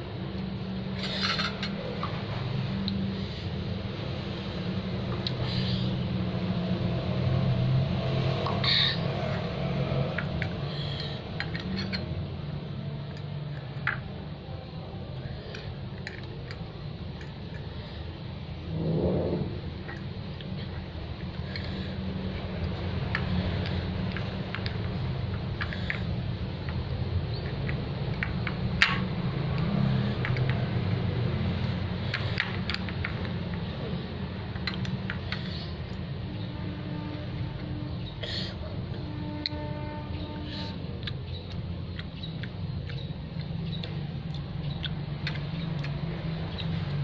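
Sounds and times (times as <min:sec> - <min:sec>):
steady low hum: 0:00.0 - 0:47.0
cutlery scraping on glass plate: 0:01.0 - 0:01.8.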